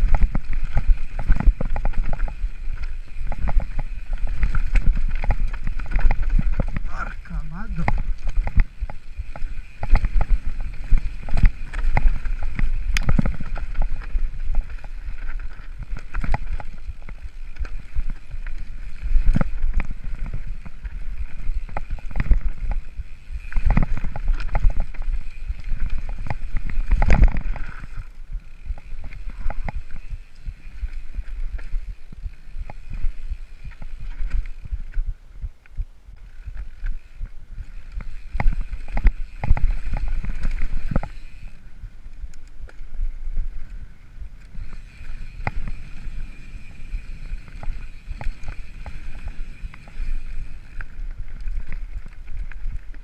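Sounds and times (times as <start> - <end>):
bike clattering over rocks: 0.0 - 6.9, 7.6 - 30.2
wind rumbling on microphone: 0.0 - 53.0.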